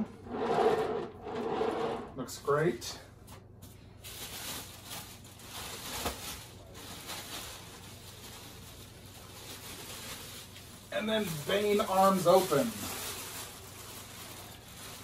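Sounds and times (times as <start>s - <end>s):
plastic wrapping rustling: 4.0s - 15.0s.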